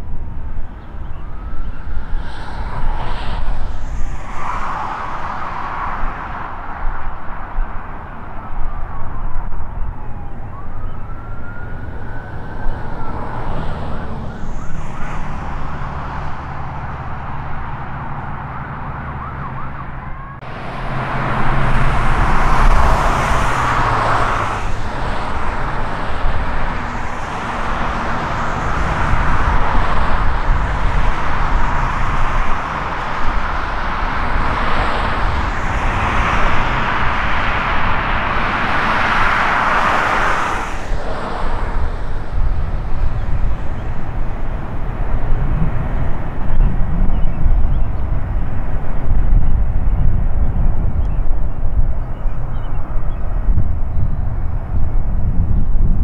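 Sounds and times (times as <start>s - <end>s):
rising and falling whine: 0.0s - 46.6s
jet engine running: 20.4s - 44.2s.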